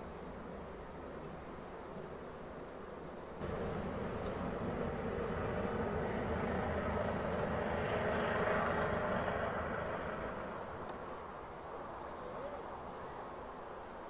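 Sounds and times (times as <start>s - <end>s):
locomotive cooling blowers whirring: 3.4s - 11.2s.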